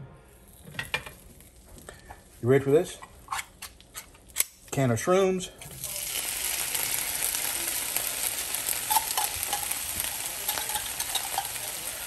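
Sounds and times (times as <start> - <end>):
mushrooms sizzling in butter: 5.7 - 12.0
small crackles and pops: 6.6 - 11.6.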